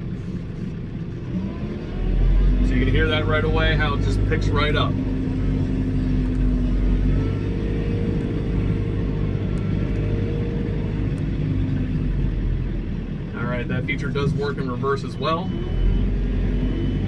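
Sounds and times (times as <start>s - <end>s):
diesel engine rumble: 0.0s - 17.0s.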